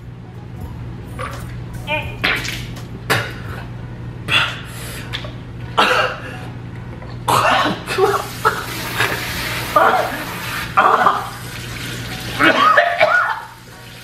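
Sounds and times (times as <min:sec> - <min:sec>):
man coughing: 0:05.8 - 0:06.3, 0:07.3 - 0:08.3.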